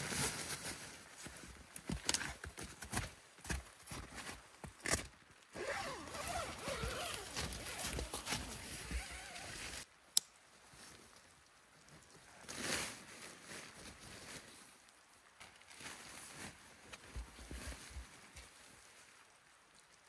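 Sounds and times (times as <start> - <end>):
nylon tent fabric rustling: 0.0 - 1.5, 5.5 - 9.9, 12.4 - 14.7
snowshoe steps crunching snow: 3.0 - 9.8
zipper being worked: 5.6 - 9.8.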